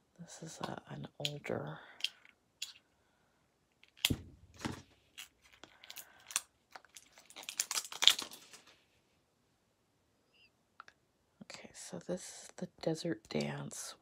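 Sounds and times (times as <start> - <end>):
tape crinkling and tearing: 3.8 - 8.8.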